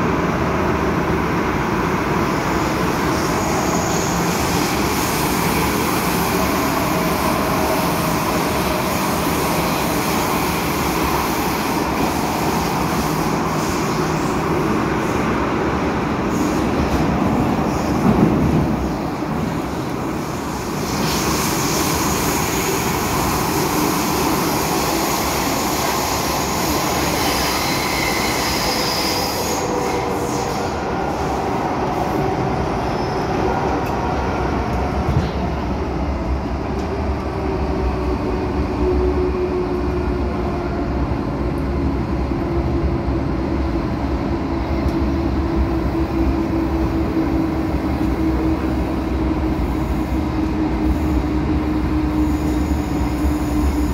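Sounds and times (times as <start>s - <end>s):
high squeal: 24.7s - 30.9s.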